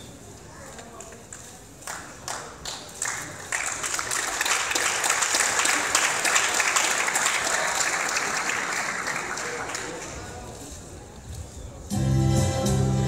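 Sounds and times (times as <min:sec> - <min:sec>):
audience applauding: 0:01.8 - 0:10.4.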